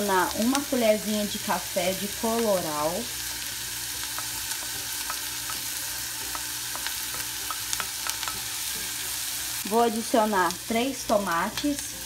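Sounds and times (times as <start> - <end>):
onion sizzling in oil: 0.0 - 12.0.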